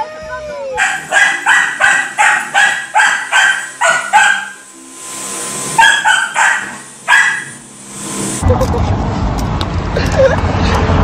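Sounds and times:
puppy barking: 0.8 - 4.6, 5.8 - 7.6
vacuum whine: 0.8 - 9.6.

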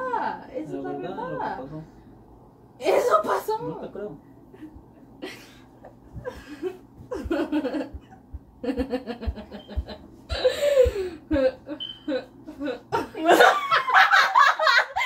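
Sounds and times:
woman laughing: 4.6 - 15.0.

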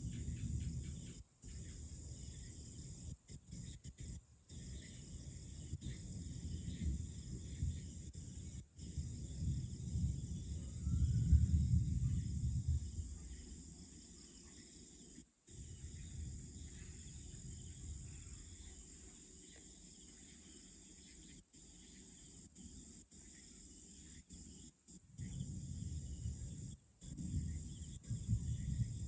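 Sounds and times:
night insects chorus: 0.0 - 29.0
low rumble: 4.6 - 13.4, 25.2 - 29.0.

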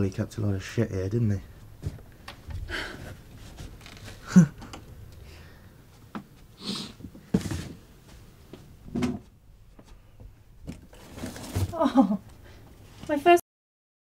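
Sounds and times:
rustling: 1.5 - 4.5, 10.6 - 13.2
breaths and sniffs: 6.6 - 7.1.

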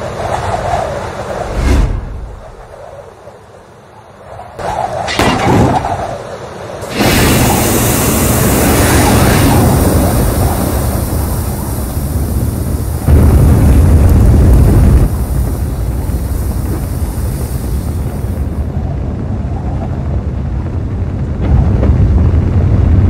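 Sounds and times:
rocket engines rumbling: 0.0 - 23.0.

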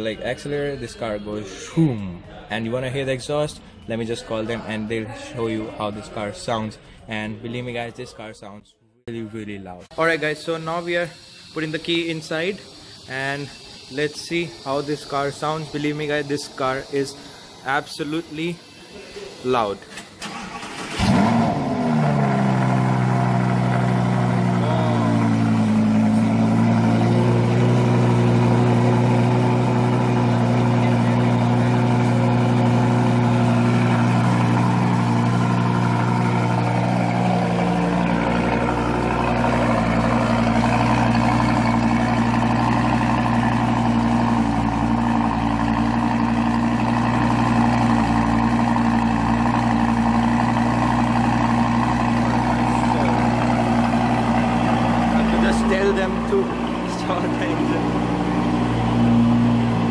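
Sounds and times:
sports car engine idling: 20.3 - 59.9.

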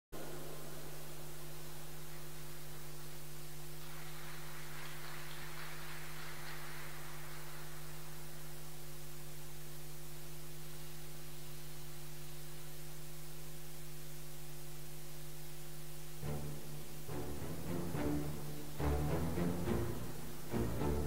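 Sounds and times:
electrical mains hum: 0.2 - 21.0
loud musical note: 16.2 - 21.0.

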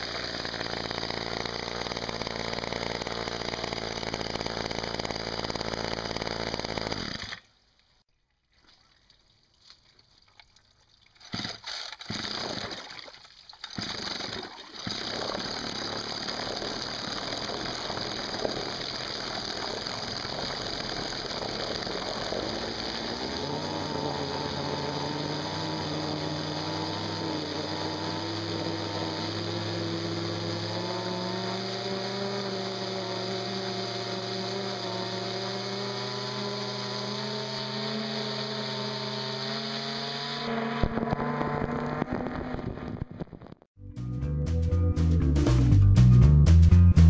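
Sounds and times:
two-stroke engine running: 0.0 - 7.4, 11.4 - 12.7, 13.8 - 43.4
propeller churning water: 10.3 - 41.6.

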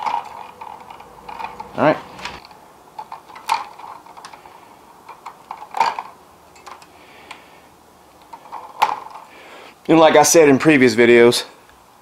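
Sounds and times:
wire strippers clicking and snipping: 0.0 - 7.4.

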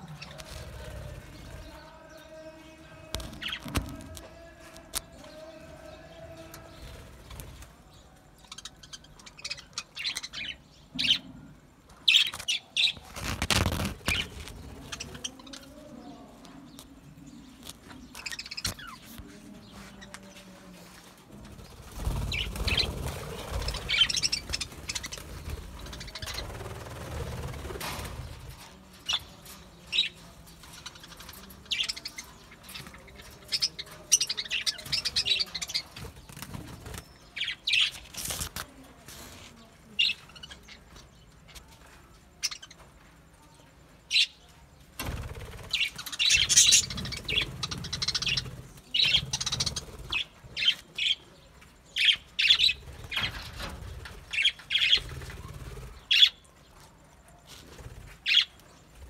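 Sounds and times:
budgerigars chirping and chattering: 5.3 - 11.3, 12.0 - 15.7, 16.7 - 20.2, 21.7 - 26.9, 27.5 - 38.6, 45.6 - 56.5, 58.2 - 58.8.

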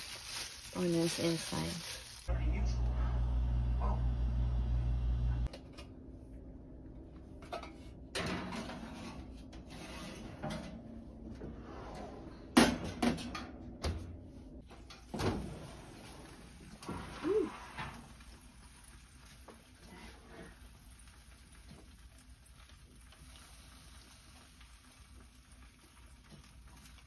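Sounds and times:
low steady hum: 2.3 - 15.0.

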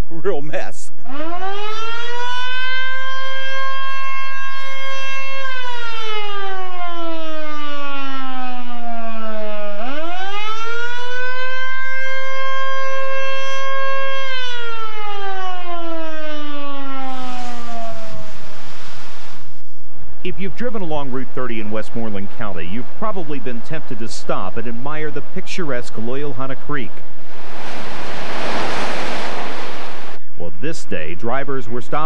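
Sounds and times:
mechanical warning siren wailing: 1.0 - 18.6.

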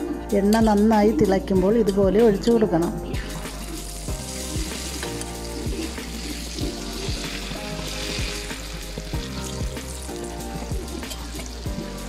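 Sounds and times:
background music with a beat: 0.0 - 12.0
batter sizzling in hot oil: 3.2 - 12.0.

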